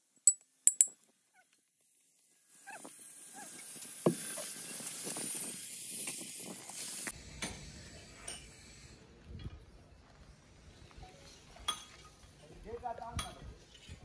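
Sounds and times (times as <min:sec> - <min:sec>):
steady high hiss: 0:02.2 - 0:09.2
knocks and scraping of sand: 0:02.6 - 0:07.2.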